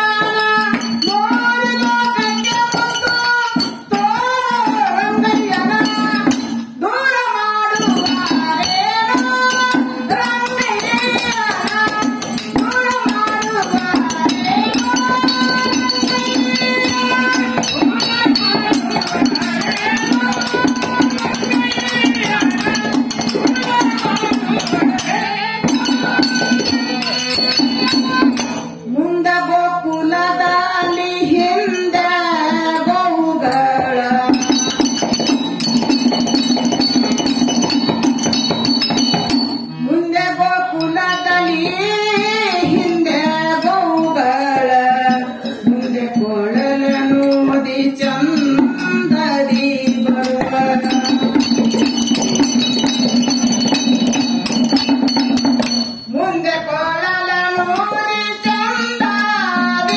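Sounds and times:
jingling hand percussion: 0.0 - 59.9
drum: 7.7 - 28.9, 32.5 - 39.8, 40.8 - 56.1
devotional singing: 39.9 - 51.5.

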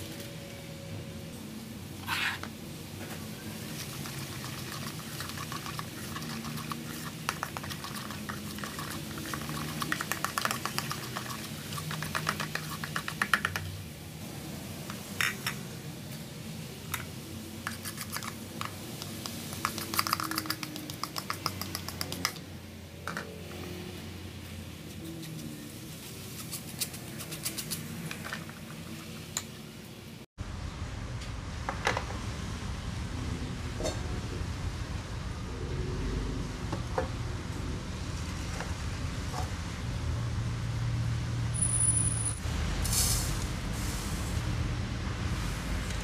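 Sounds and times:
metal spoon stirring batter in bowl: 3.6 - 13.7.

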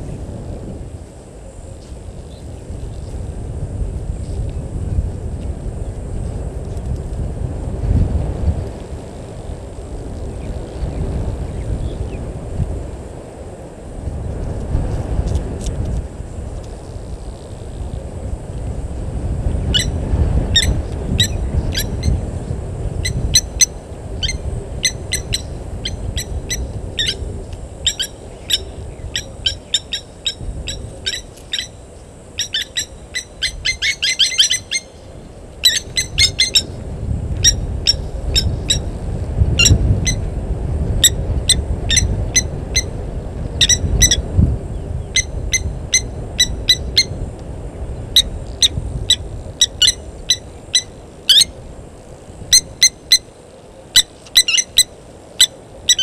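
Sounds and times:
steady low rumble: 0.0 - 55.9
birds chirping: 27.8 - 31.8, 32.4 - 36.7, 53.9 - 56.0.

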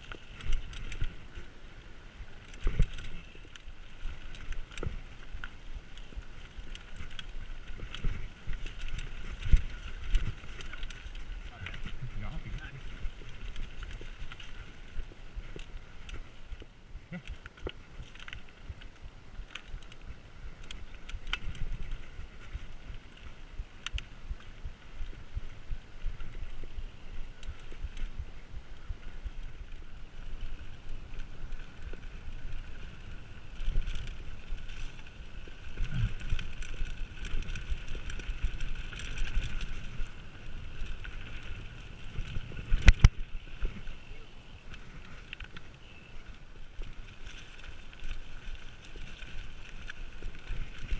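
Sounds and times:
bike clicks and rattles: 0.0 - 50.9
tyres rumbling over rough ground: 0.0 - 50.9
wind noise on microphone: 17.8 - 50.9.

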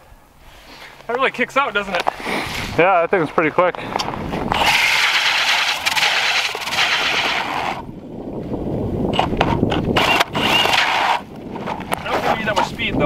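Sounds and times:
ice auger scraping through ice: 4.5 - 7.9, 10.0 - 12.9.

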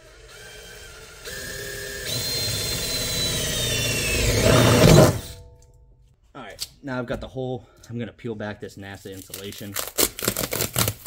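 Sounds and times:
power drill boring metal: 0.0 - 5.4.

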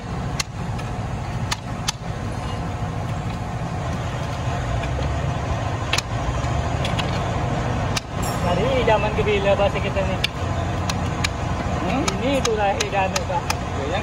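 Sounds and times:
low engine drone: 0.0 - 14.0
hammer striking steel bar: 8.0 - 8.8.

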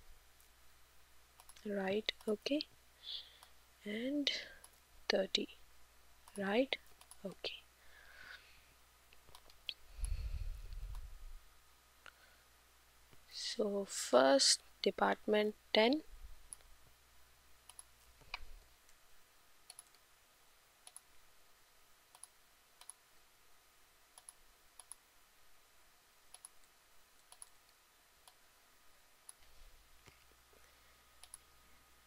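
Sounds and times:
computer mouse clicks: 1.4 - 2.4, 6.2 - 7.4, 9.1 - 11.1, 17.6 - 19.0, 19.6 - 20.0, 20.8 - 21.1, 22.1 - 23.0, 24.2 - 25.0, 26.3 - 28.4, 31.2 - 31.5.

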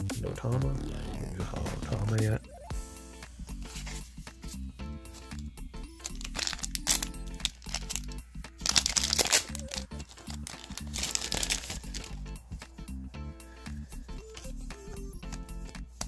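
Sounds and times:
background music: 0.0 - 16.0
foil pack crinkling and tearing: 5.1 - 12.2.

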